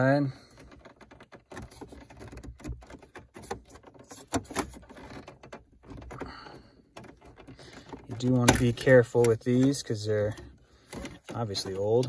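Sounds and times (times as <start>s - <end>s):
light rubbing of plastic: 0.0s - 12.0s.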